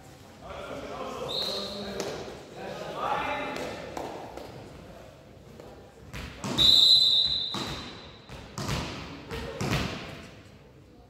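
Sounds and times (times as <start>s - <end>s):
referee's whistle: 1.3s - 1.8s, 6.5s - 7.9s
volleyball bouncing on hall floor: 5.6s - 10.4s.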